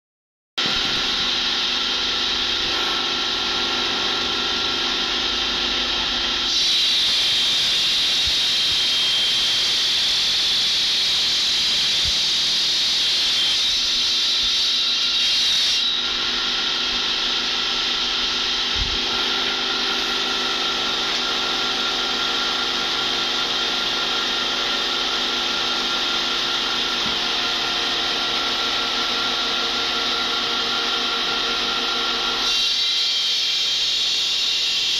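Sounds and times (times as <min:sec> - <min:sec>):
circular saw motor hum: 0:00.6 - 0:32.6
saw blade grinding stone: 0:06.5 - 0:22.5.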